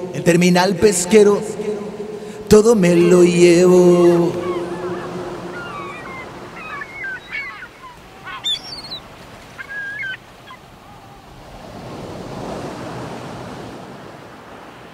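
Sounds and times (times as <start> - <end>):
gulls calling: 0.0 - 11.4
sea waves washing: 0.0 - 14.9.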